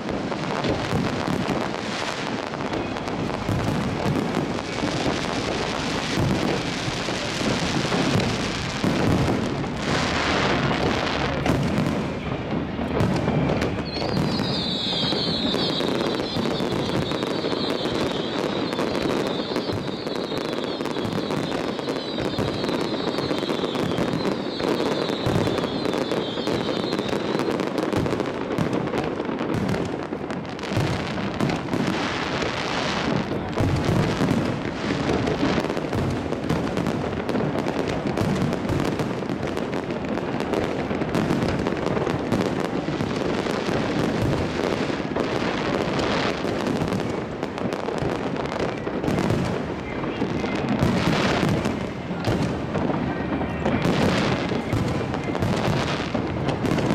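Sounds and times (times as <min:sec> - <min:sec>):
fireworks bangs and crackling: 0:00.0 - 0:56.9
high wavering whistle: 0:13.4 - 0:27.2.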